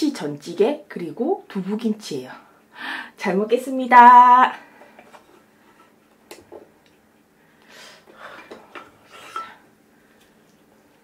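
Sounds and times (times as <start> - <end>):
quiet breaths: 2.4 - 3.2
wooden spoon scraping ceramic pot: 9.1 - 9.6.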